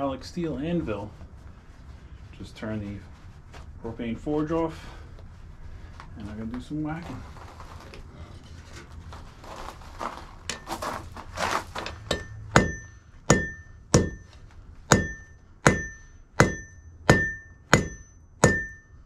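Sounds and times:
anvil ringing: 12.0 - 14.3, 14.9 - 19.0
hammer striking hot steel on anvil: 12.0 - 14.3, 14.9 - 19.0.

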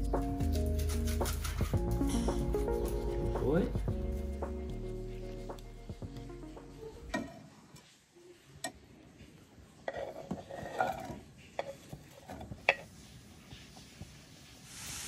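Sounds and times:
knife scraping on wooden board: 0.5 - 1.8, 9.8 - 13.0.

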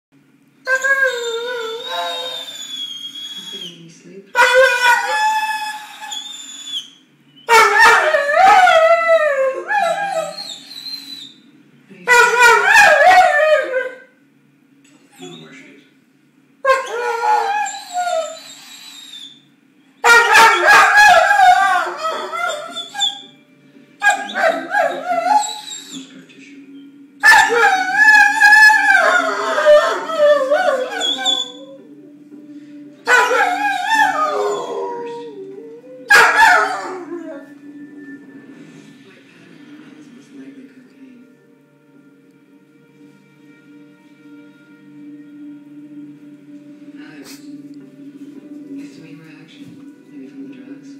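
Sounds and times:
dog howling and whining: 0.6 - 3.7, 4.4 - 11.4, 12.1 - 14.1, 16.6 - 23.4, 24.0 - 26.1, 27.2 - 32.0, 33.0 - 38.4.

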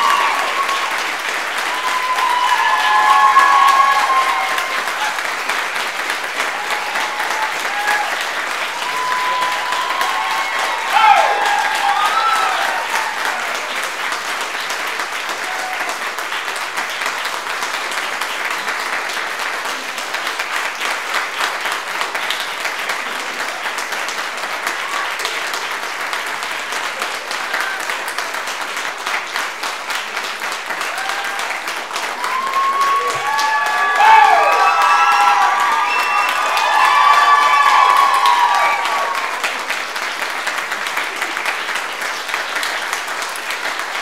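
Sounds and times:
whoops and cheers: 0.0 - 5.3, 6.4 - 13.7, 15.4 - 16.0, 30.8 - 39.6
audience applauding: 0.0 - 44.0.

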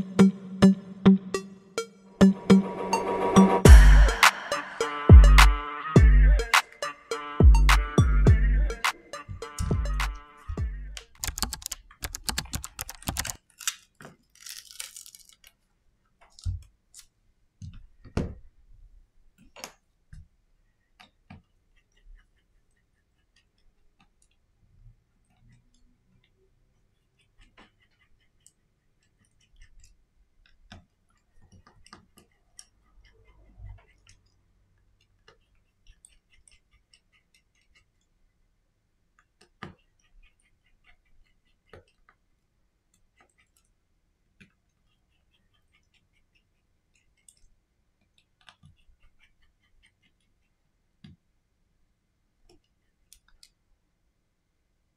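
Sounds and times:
small tools clicking: 11.0 - 15.6.

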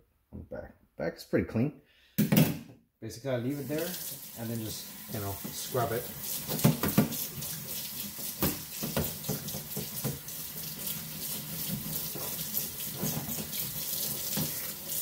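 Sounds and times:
tap water running into sink: 3.5 - 15.0.

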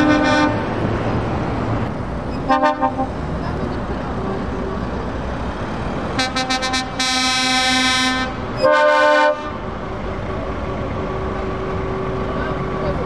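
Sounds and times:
lorry horns: 0.0 - 0.8, 2.5 - 3.2, 6.2 - 9.7
truck engines running: 0.0 - 13.0.

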